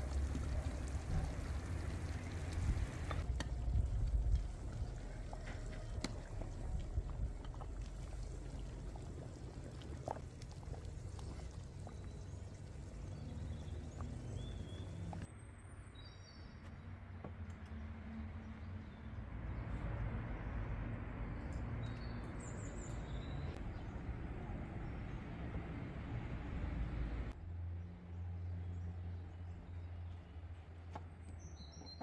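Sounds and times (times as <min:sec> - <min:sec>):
steady low rumble: 0:00.0 - 0:15.2.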